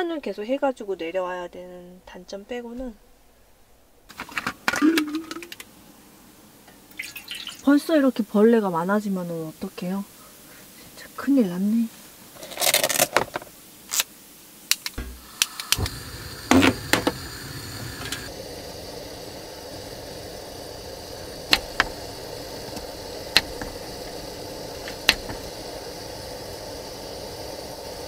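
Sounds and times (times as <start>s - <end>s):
gas stove burner hissing: 13.7s - 28.0s
igniter clicks: 14.7s - 18.4s, 19.6s - 26.7s.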